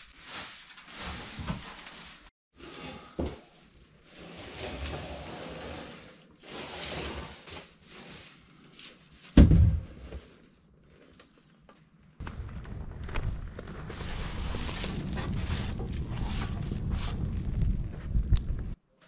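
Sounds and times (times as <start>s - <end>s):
broom sweeping wooden floor: 0.0s - 9.4s, 13.9s - 17.2s
loud thump: 9.4s - 10.0s.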